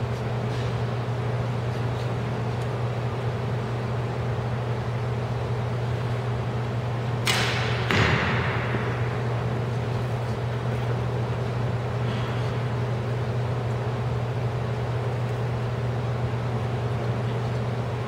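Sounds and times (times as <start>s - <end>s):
steady low hum: 0.0s - 18.0s
arrow thudding into target: 7.2s - 9.3s.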